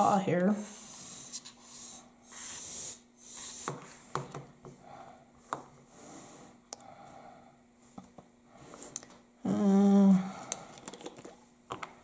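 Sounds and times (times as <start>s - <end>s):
compressed air hissing: 0.6s - 3.8s.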